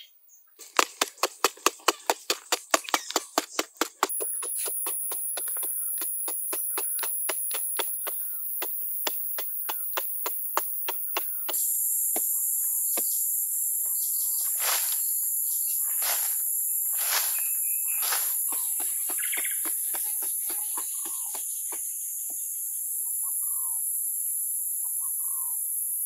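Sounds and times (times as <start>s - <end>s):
quick taps digging soil: 0.6s - 12.3s, 14.5s - 15.1s, 15.9s - 16.4s, 17.0s - 22.4s
high insect drone: 4.1s - 26.0s
scrapes of earth: 14.4s - 15.2s, 15.8s - 19.0s.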